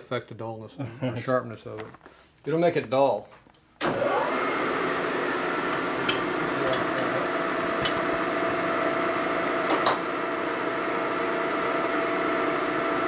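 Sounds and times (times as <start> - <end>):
milling machine humming: 4.0 - 13.0.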